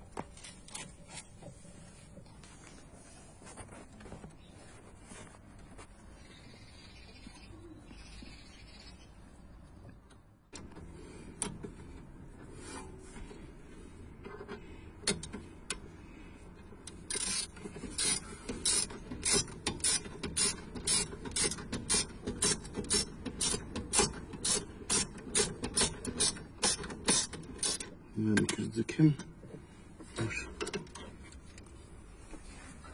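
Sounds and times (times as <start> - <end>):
socket ratchet clicking: 17.1 - 27.9.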